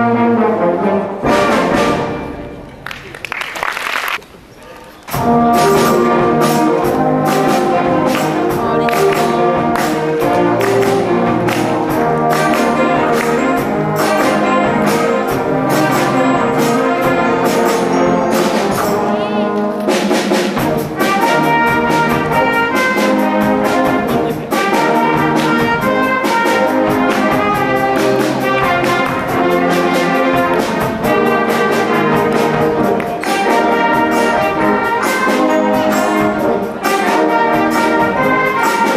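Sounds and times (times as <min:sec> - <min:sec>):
concert band playing: 0:00.0 - 0:38.9.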